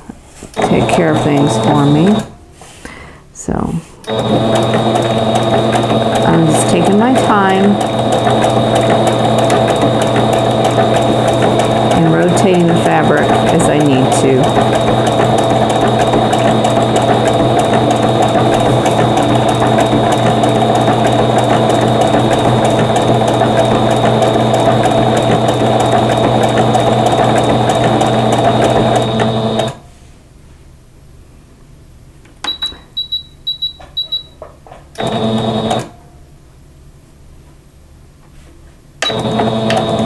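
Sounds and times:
sewing machine stitching: 0.6s - 2.3s, 4.0s - 29.8s, 35.0s - 35.9s, 39.0s - 40.0s.

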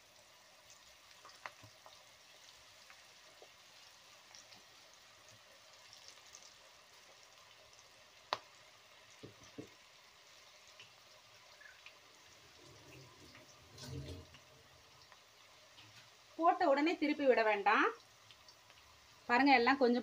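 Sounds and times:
oil sizzling with crackles: 0.0s - 20.0s.

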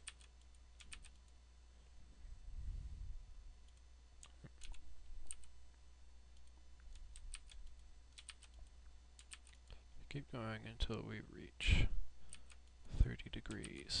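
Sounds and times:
computer mouse and keyboard clicks: 0.0s - 1.4s, 3.7s - 5.5s, 6.3s - 9.7s, 12.3s - 12.8s, 13.4s - 13.9s
low steady hum: 0.0s - 14.0s.

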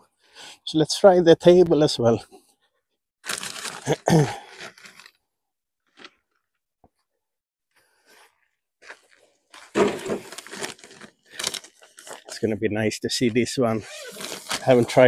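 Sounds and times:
bag scraping: 3.2s - 5.1s, 9.6s - 12.4s, 13.8s - 15.0s
padded bag rustling: 13.9s - 15.0s.

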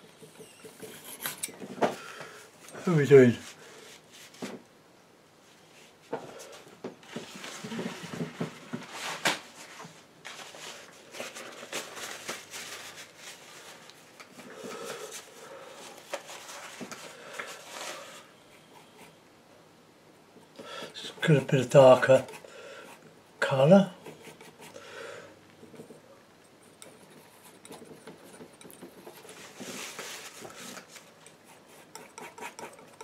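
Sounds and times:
palette knife scraping paint: 26.8s - 33.0s.

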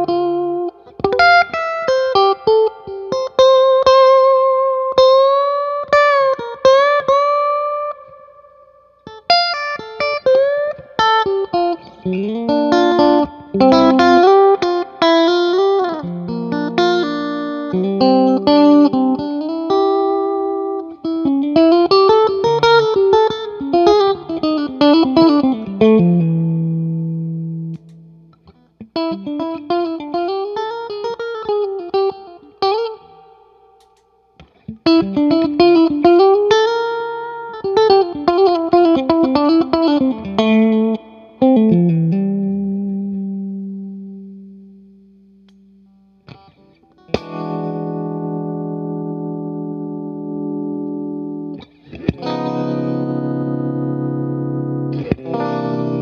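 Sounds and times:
electric guitar with string bends: 0.0s - 56.0s.

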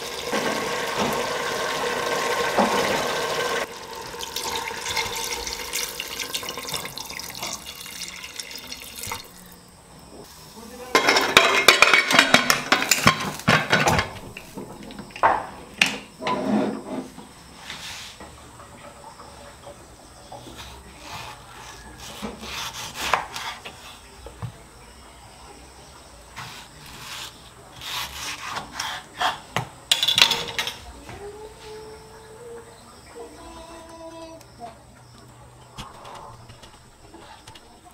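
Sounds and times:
knife slicing and scraping board: 20.6s - 23.8s, 26.4s - 29.4s.

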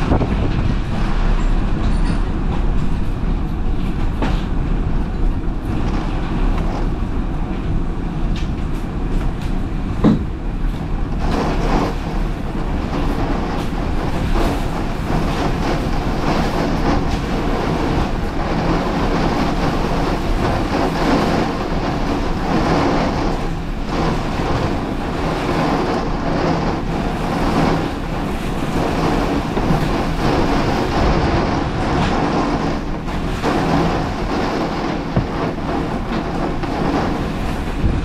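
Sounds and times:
loud rushing tornado wind: 0.0s - 38.0s.

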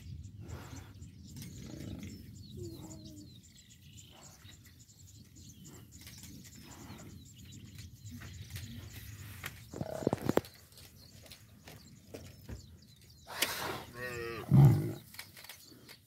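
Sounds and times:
small birds chirping: 0.0s - 16.0s
low animal call: 13.3s - 15.1s.

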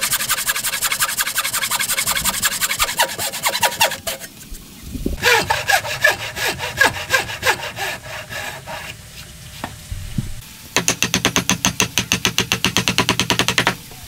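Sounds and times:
hand saw cutting wood: 0.0s - 4.4s, 5.2s - 9.0s
mallet tapping chisel into wood: 10.8s - 13.8s.

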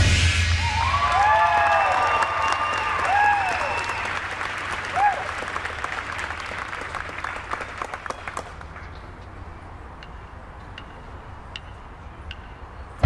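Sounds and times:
crowd applause: 0.6s - 8.8s
stray claps: 0.8s - 8.9s.

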